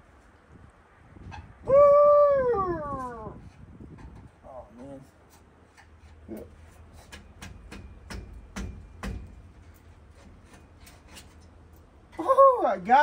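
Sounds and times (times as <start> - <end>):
hand tools clicking and knocking: 3.9 - 11.9.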